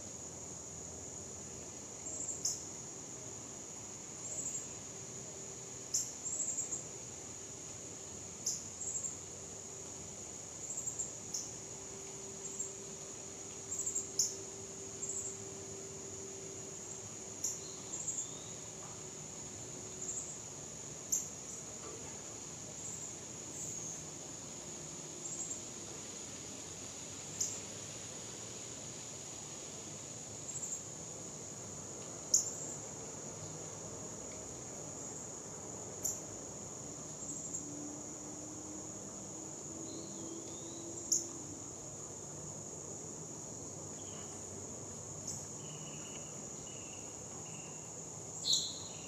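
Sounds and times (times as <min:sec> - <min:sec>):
high-pitched insect drone: 0:45.2 - 0:49.0.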